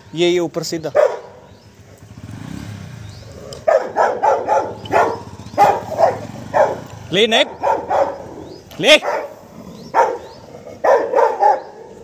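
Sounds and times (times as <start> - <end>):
dog barking sharply: 0.9 - 1.4, 3.6 - 8.3, 9.0 - 11.9
dog growling low: 9.3 - 10.8.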